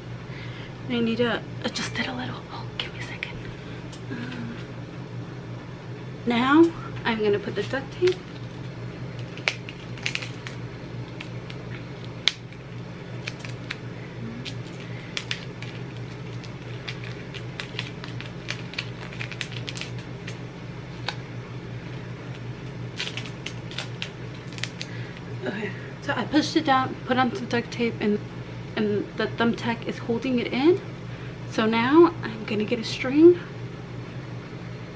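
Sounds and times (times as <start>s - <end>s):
steady low hum: 0.0s - 34.9s
tape clicks and crackles: 7.6s - 21.2s, 22.2s - 25.3s.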